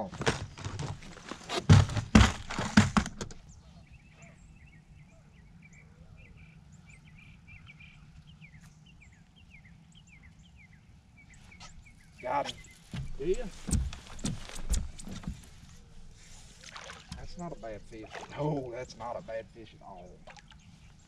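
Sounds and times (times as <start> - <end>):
gear knocking on boat deck: 1.7 - 3.4
low steady hum: 3.4 - 21.0
small birds chirping: 3.4 - 21.0.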